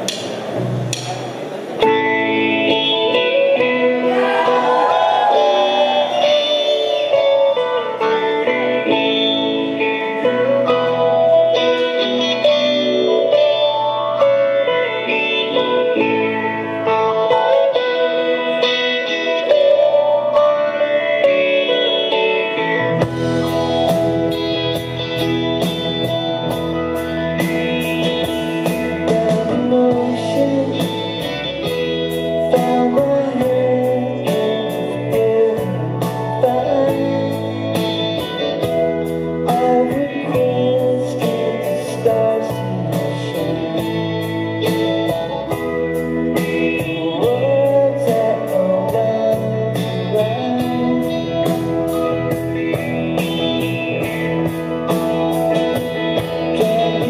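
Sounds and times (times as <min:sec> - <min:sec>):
bass guitar: 0:00.0 - 0:57.0
electric guitars: 0:00.0 - 0:57.0
person singing: 0:02.8 - 0:16.4, 0:28.6 - 0:45.6, 0:46.3 - 0:52.4, 0:55.8 - 0:57.0
drum kit beat: 0:23.0 - 0:40.6, 0:43.0 - 0:57.0.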